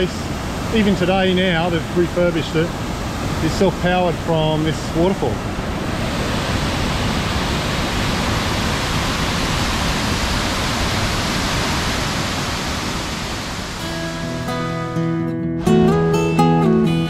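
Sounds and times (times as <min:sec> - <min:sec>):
waterfall rushing: 0:00.0 - 0:14.6
acoustic guitar music: 0:13.8 - 0:17.0.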